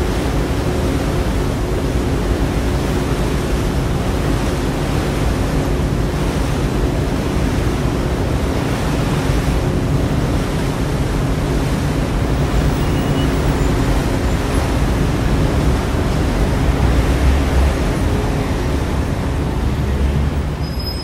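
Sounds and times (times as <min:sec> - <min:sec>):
wind and water rushing: 0:00.0 - 0:21.0
ferry engines droning: 0:09.7 - 0:21.0.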